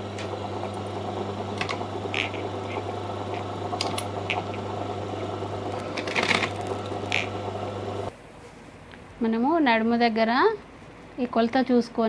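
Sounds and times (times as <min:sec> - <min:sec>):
low electric hum: 0:00.0 - 0:08.3.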